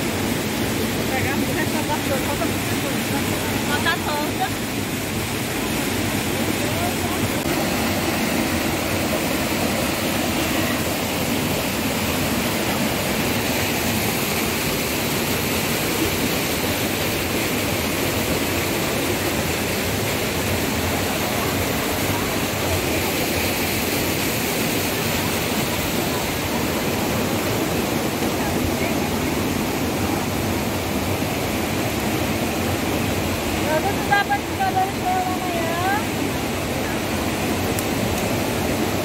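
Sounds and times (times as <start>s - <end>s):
water cascading over rocks: 0.0s - 39.0s.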